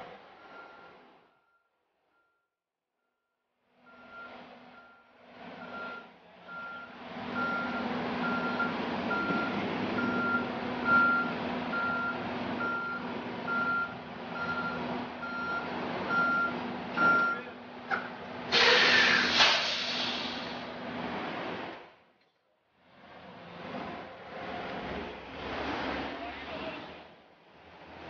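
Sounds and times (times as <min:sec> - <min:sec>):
diesel engine hum: 0:00.0 - 0:02.4, 0:03.6 - 0:28.0
backup alarm beeping: 0:03.9 - 0:17.4.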